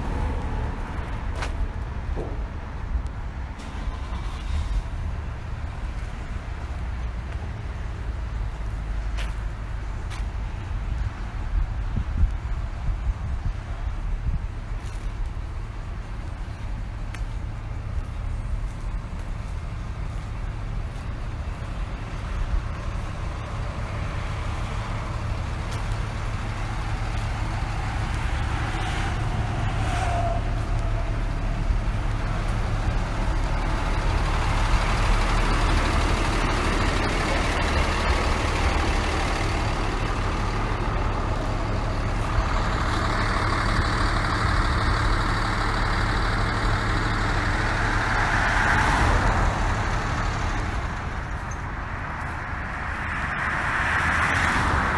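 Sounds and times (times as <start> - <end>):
vehicle low rumble: 0.0 - 54.9.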